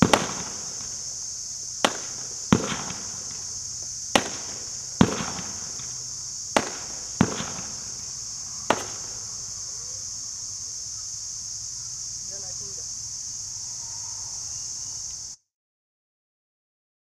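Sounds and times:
fireworks cake bangs: 0:00.0 - 0:09.4.

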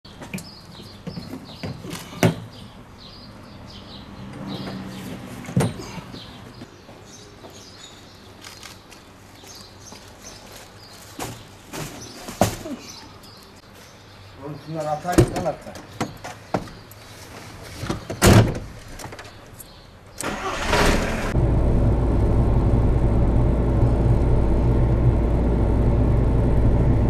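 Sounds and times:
small birds chirping: 0:00.1 - 0:18.2, 0:19.0 - 0:20.2.

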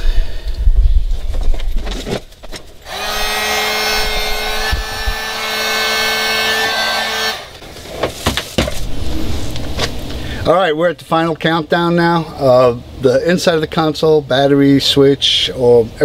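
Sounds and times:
heat gun fan humming: 0:02.8 - 0:08.2.

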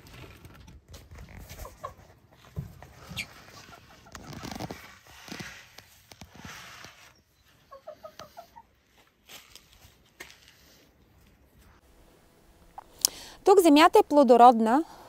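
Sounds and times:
rustling and knocks: 0:00.1 - 0:07.1
hens clucking: 0:01.4 - 0:04.4, 0:07.5 - 0:08.9.

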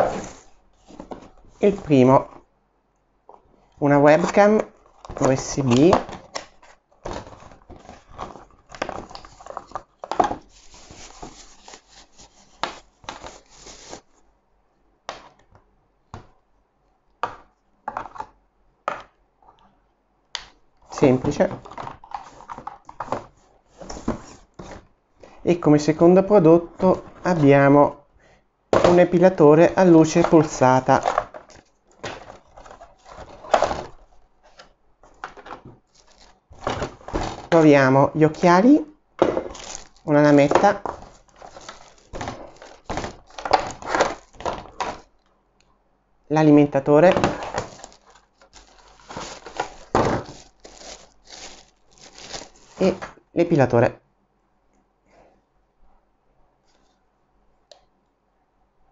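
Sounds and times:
cardboard scraping and rubbing: 0:00.0 - 0:01.8, 0:09.3 - 0:14.2
cardboard and plastic bag rustling: 0:00.0 - 0:02.0, 0:04.2 - 0:14.2, 0:28.8 - 0:37.7, 0:39.2 - 0:45.1, 0:47.0 - 0:53.2.

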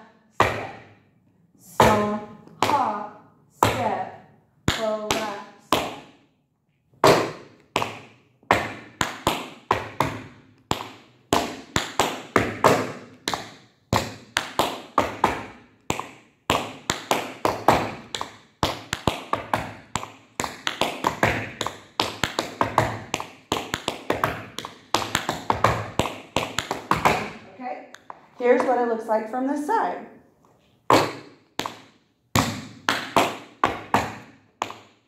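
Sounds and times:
tap shoes on hard floor: 0:07.0 - 0:27.4.

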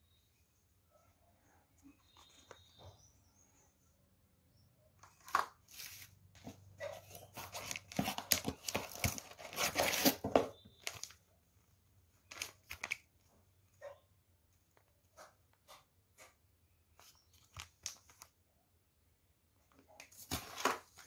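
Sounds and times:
packaging rustling and tearing: 0:07.1 - 0:11.2, 0:12.3 - 0:13.0.

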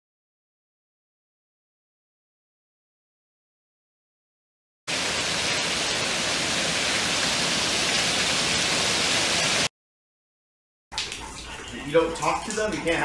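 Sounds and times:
water pouring and splashing: 0:04.9 - 0:09.7, 0:10.9 - 0:13.0.

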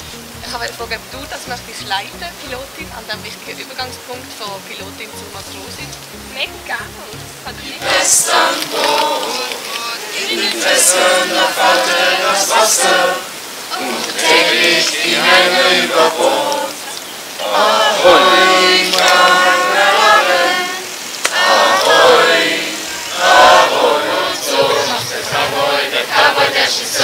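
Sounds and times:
young voices singing together: 0:06.8 - 0:27.0.

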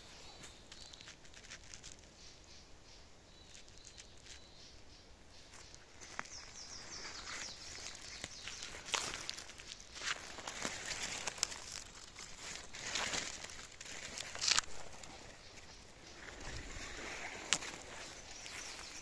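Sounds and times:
twigs brushing: 0:00.0 - 0:02.3, 0:03.4 - 0:04.6, 0:05.5 - 0:19.0
footsteps crunching dry leaves: 0:05.5 - 0:19.0.

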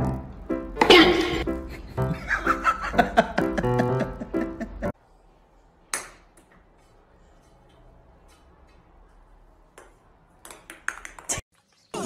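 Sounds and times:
music: 0:00.0 - 0:04.9.

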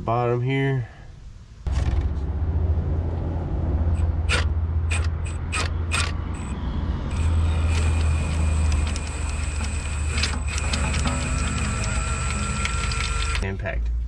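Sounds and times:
power tool droning: 0:03.9 - 0:13.4
sharp clicks: 0:03.9 - 0:13.4.

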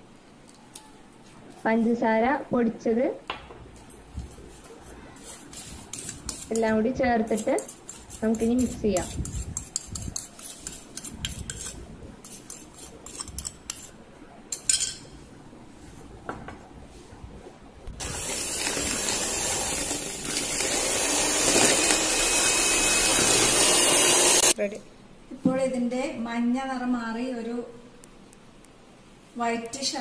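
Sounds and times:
electric hand mixer running: 0:18.0 - 0:24.6.

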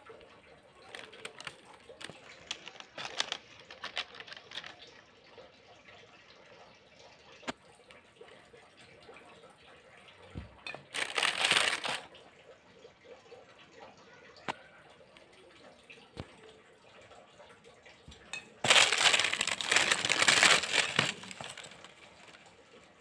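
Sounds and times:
plastic wrapping crinkling: 0:00.8 - 0:04.8, 0:10.9 - 0:12.1, 0:18.6 - 0:22.4
hand rummaging in cardboard box: 0:00.9 - 0:04.8, 0:10.9 - 0:12.1, 0:18.6 - 0:21.9.

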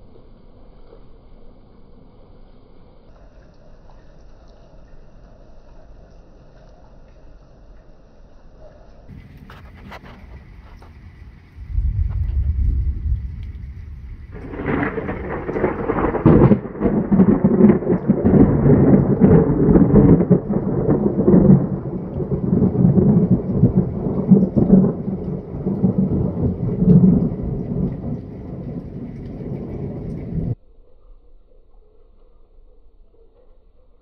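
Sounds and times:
rain falling: 0:00.0 - 0:30.6
rolling thunder: 0:09.1 - 0:30.6.

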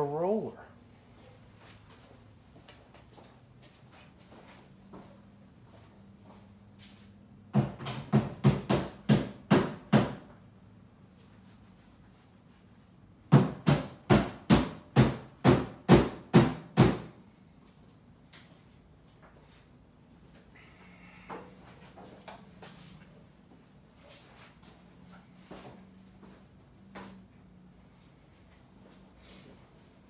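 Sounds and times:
sharp knocks on hard surface: 0:07.5 - 0:10.3, 0:13.3 - 0:17.1.

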